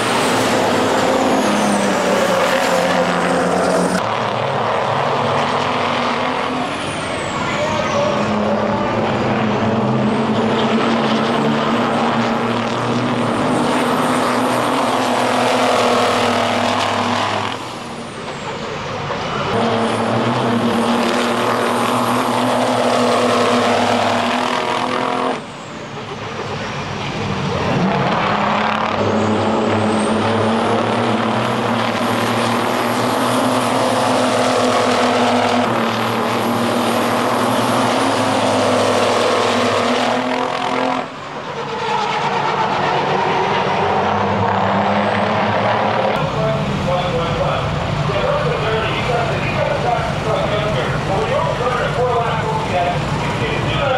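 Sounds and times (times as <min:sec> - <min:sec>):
diesel truck engines droning: 0:00.0 - 0:53.9
high engine whine: 0:00.0 - 0:53.9.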